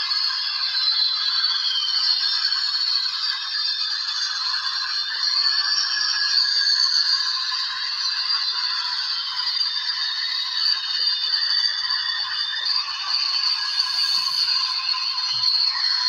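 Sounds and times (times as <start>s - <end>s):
jet airliner hissing rush: 13.8s - 14.8s.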